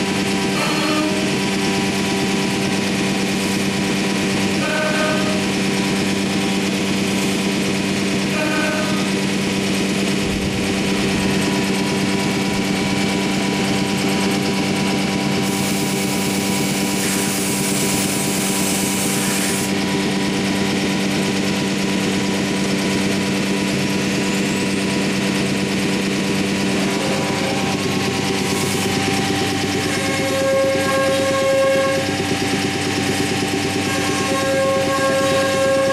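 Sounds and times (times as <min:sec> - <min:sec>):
cnc router hum: 0:00.0 - 0:35.9
hiss: 0:15.4 - 0:19.7.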